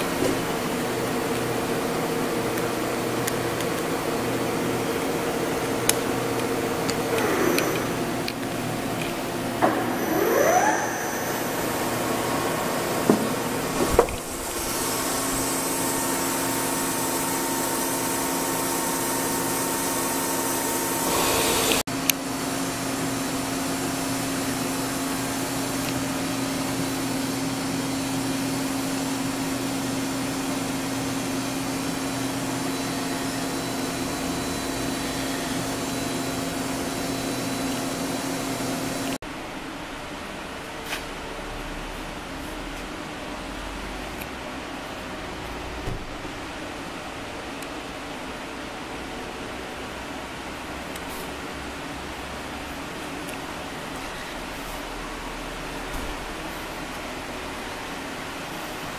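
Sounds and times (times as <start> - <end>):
boring mill spindle whine and hum: 0.0 - 58.9.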